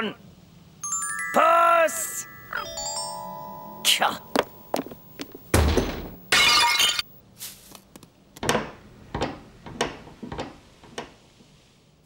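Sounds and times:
heavy thud: 5.5 - 6.2.

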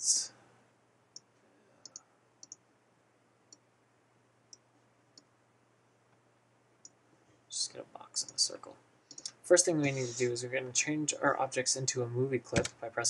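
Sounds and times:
computer mouse clicks: 1.2 - 2.6, 9.1 - 9.4.

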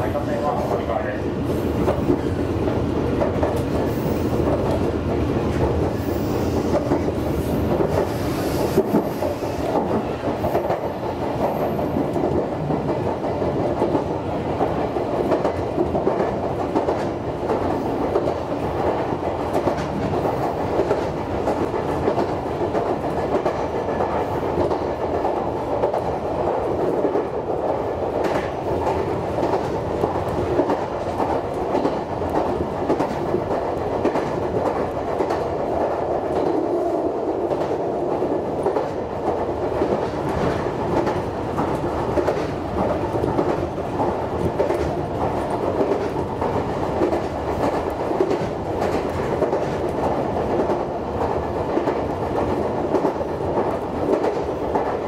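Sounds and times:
train wheels on rails: 0.0 - 55.0
wheels clacking over rail joints: 37.3 - 55.0.

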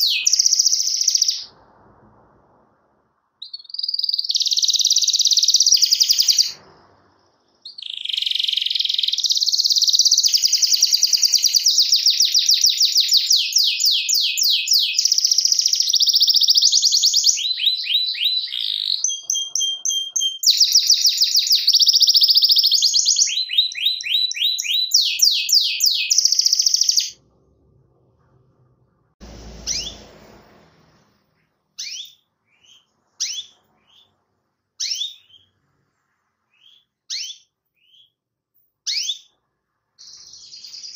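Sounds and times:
canary singing trills: 0.0 - 1.5, 3.4 - 6.7, 7.4 - 27.2, 29.4 - 30.1, 31.8 - 35.7, 36.4 - 38.2, 38.8 - 39.4, 40.0 - 40.9
canary high chirps: 0.0 - 1.6, 3.4 - 27.2, 29.2 - 30.4, 31.4 - 40.9
low rumble: 1.5 - 3.5, 27.2 - 31.8.

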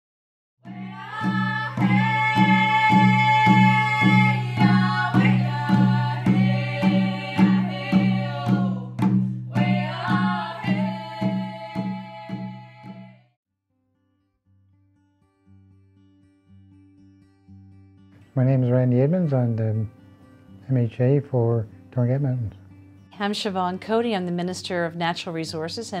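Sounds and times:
even drumbeat: 0.7 - 12.6.

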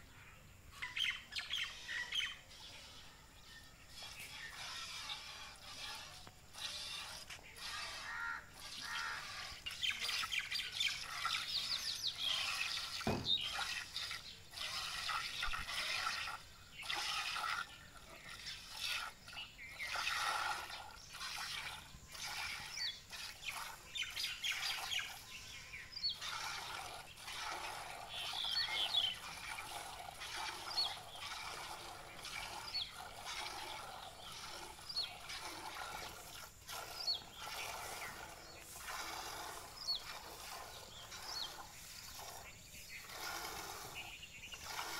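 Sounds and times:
birds chirping: 0.0 - 44.9
milk squirting into steel pail: 4.1 - 25.2, 26.1 - 44.9.

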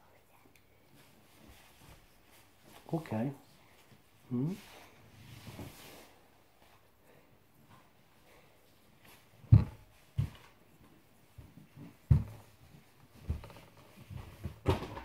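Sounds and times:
dull thumps: 9.4 - 10.4.

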